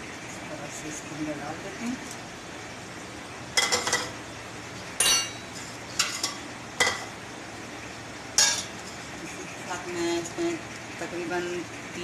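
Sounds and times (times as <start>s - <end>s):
metal clanks on cooking pot: 3.6s - 4.2s, 5.0s - 7.1s, 8.4s - 9.0s.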